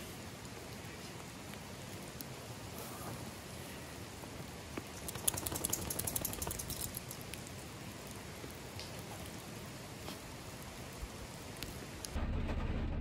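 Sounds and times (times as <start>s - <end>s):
steady rain falling: 0.0s - 12.2s
backpack gear clicks and rustles: 5.0s - 7.1s.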